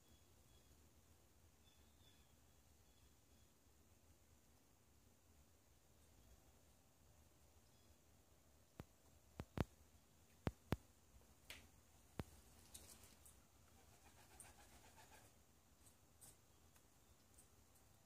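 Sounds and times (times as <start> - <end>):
faint fluttering rustle: 12.2 - 16.5.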